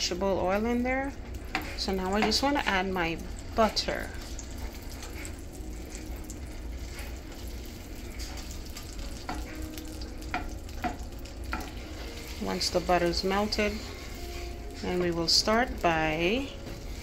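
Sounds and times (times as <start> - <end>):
butter and oil sizzling in a pan: 0.0 - 17.0
wooden spoon stirring in a pan: 0.2 - 17.0.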